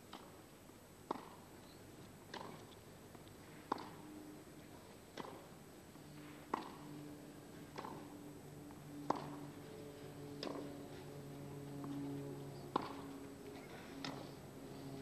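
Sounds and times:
racquets hitting tennis ball: 1.0 - 1.5, 2.3 - 2.8, 3.6 - 4.0, 5.1 - 5.6, 6.2 - 6.9, 7.6 - 8.2, 9.0 - 9.7, 10.4 - 11.0, 11.8 - 14.3.

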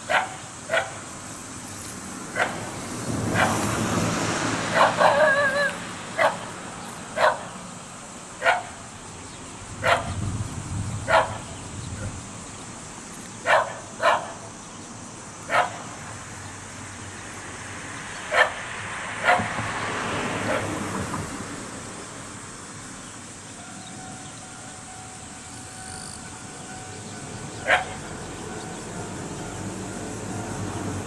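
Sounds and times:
dog barking: 0.1 - 1.0, 2.4 - 2.7, 3.3 - 3.6, 4.7 - 6.6, 7.2 - 7.6, 8.4 - 8.8, 9.8 - 10.2, 11.1 - 12.1, 13.4 - 14.4, 15.5 - 15.9, 18.3 - 18.6, 19.2 - 19.6, 20.4 - 20.8, 27.6 - 28.0.

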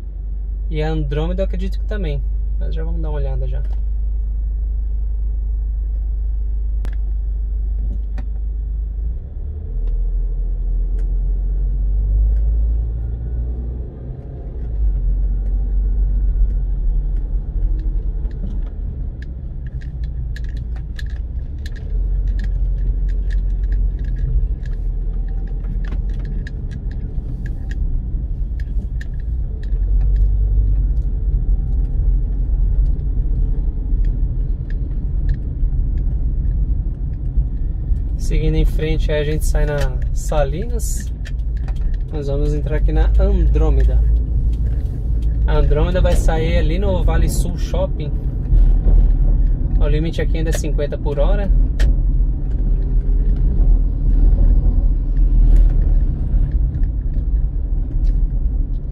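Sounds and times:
car road and engine rumble: 0.0 - 58.9
light clicks and rattles: 14.2 - 58.9.

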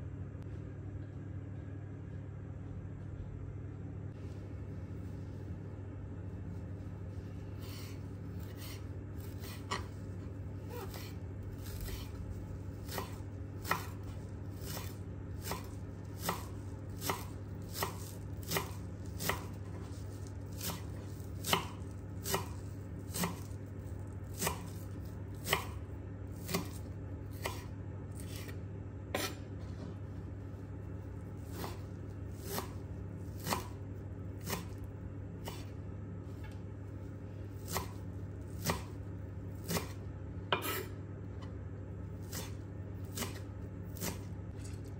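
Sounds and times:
steady low hum: 0.0 - 44.9
knife chopping on wooden board: 8.4 - 10.0, 10.7 - 23.6, 24.3 - 25.8, 26.4 - 28.5, 29.1 - 29.9, 31.4 - 33.8, 34.4 - 34.8, 35.4 - 35.7, 37.6 - 39.0, 39.6 - 40.9, 42.2 - 44.7.

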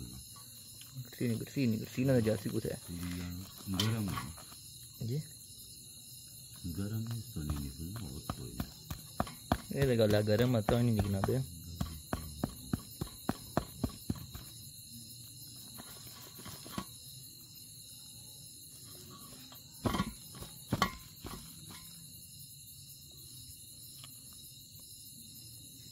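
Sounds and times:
crickets chirping: 0.0 - 25.9.

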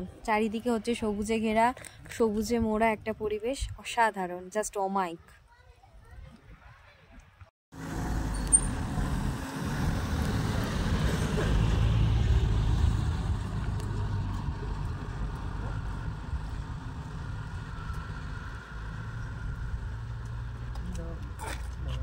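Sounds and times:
vehicle engine rumbling: 7.8 - 22.0.

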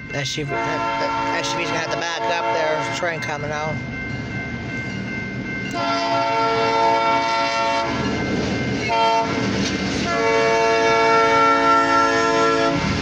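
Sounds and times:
low train rumble: 0.0 - 13.0
locomotive air horn blasts: 0.5 - 3.0, 5.7 - 8.0, 8.9 - 9.4, 10.0 - 13.0.

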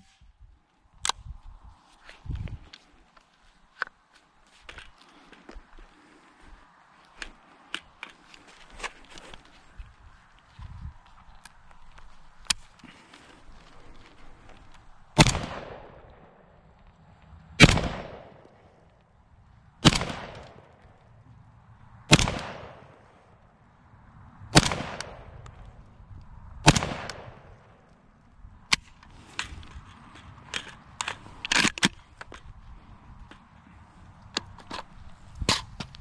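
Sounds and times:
gun handling clicks and rattles: 3.7 - 5.8, 7.0 - 9.6, 11.1 - 14.9, 28.7 - 32.6, 34.2 - 36.0
shotgun blasts with echo: 15.2 - 16.4, 17.6 - 18.5, 19.8 - 20.7, 22.1 - 23.0, 24.5 - 25.4, 26.6 - 27.6.

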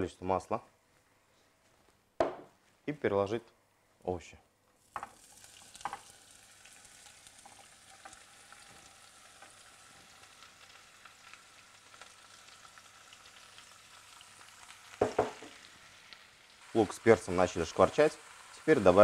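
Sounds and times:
soft knock: 2.2 - 2.5, 15.0 - 15.5
vegetables sizzling in oil: 4.8 - 19.0.

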